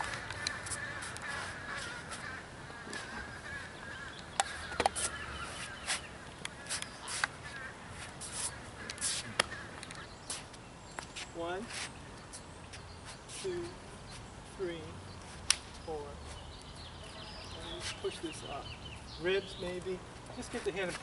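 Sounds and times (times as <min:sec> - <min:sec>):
birds chattering: 0:00.0 - 0:21.0
sharp slaps and scuffs: 0:04.3 - 0:14.3, 0:15.3 - 0:16.4, 0:17.6 - 0:18.2.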